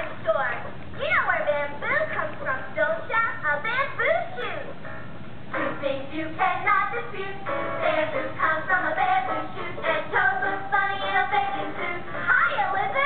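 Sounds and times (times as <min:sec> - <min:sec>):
musical theatre song: 0:05.5 - 0:13.0
voices singing: 0:05.5 - 0:13.0.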